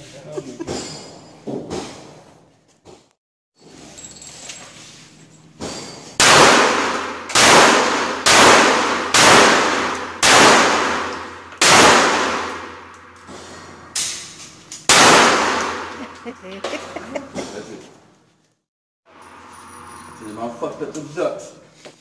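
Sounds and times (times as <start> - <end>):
pistol shots echoing: 6.2 - 13.2, 14.8 - 16.9.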